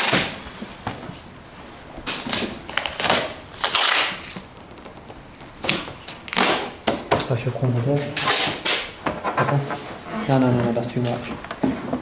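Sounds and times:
masking tape ripping: 0.0 - 0.4, 2.1 - 7.1, 8.2 - 9.0.

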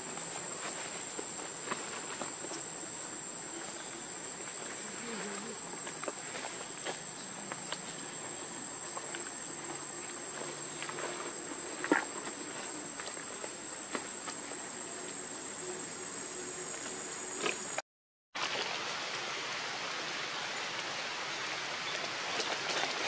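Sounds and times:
insects high-pitched drone: 0.0 - 17.8.

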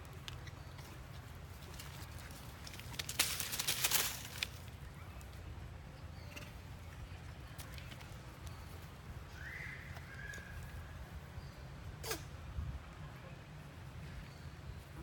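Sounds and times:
monkeys scrambling over dry leaves: 0.3 - 4.8.

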